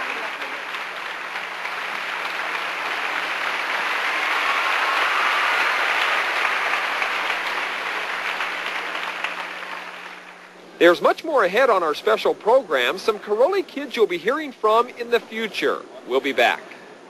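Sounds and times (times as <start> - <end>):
crowd applauding: 0.0 - 10.6.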